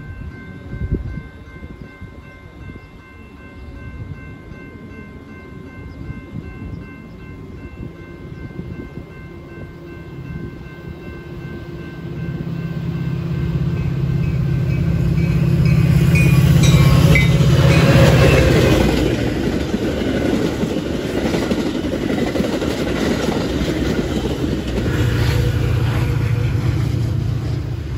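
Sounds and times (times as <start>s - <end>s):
diesel locomotive engine hum: 0.0s - 27.9s
train wheels clattering on rail: 13.8s - 27.8s.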